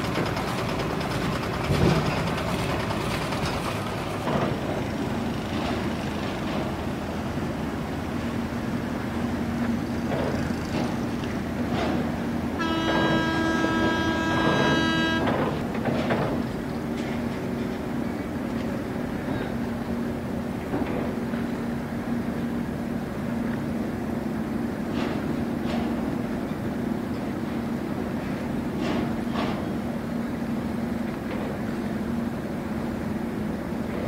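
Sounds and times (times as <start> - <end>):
boat engines rumbling: 0.0 - 34.0
water: 0.0 - 34.0
boat horn blast: 12.4 - 15.8.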